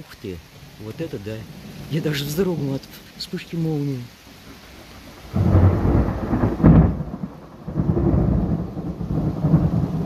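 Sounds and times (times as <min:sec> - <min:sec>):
rain falling: 0:00.0 - 0:10.0
thunder rumbling: 0:01.4 - 0:03.8, 0:04.4 - 0:10.0.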